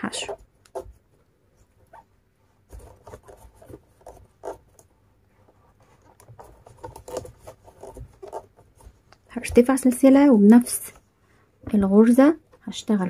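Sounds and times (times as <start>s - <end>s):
crochet hook scratching cord: 0.0s - 1.0s, 2.7s - 4.9s, 5.5s - 10.3s.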